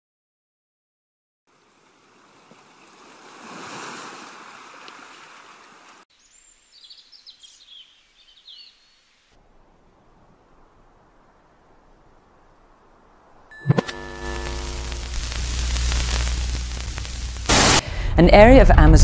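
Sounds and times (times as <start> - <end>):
songbird chirping: 6.1 - 13.4
faint hiss: 6.1 - 18.0
wave surging onto shore: 13.5 - 17.8.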